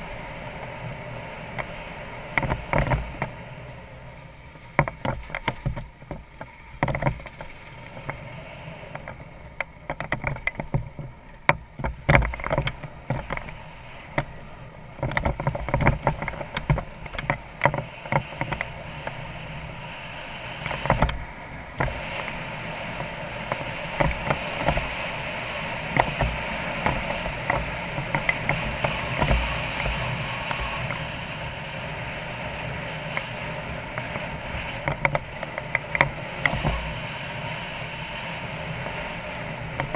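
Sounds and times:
motorcycle engine running: 0:00.0 - 0:39.9
wind and road noise: 0:00.0 - 0:39.9
stones knocking and rattling: 0:04.8 - 0:08.2, 0:09.0 - 0:13.6, 0:15.0 - 0:18.7.

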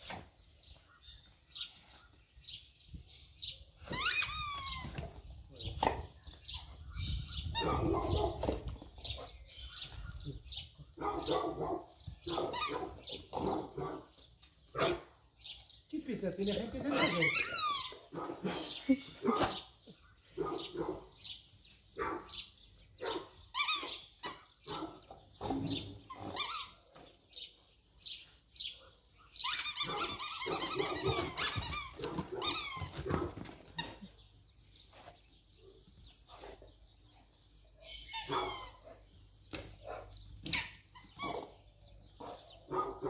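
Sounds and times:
dog barking: 0:07.6 - 0:08.5, 0:11.0 - 0:14.1, 0:14.7 - 0:15.1, 0:19.2 - 0:19.6, 0:20.4 - 0:21.1, 0:22.0 - 0:22.4, 0:23.0 - 0:23.3, 0:24.7 - 0:25.6, 0:38.3 - 0:39.0, 0:39.8 - 0:40.1, 0:41.2 - 0:41.6, 0:42.2 - 0:43.0.

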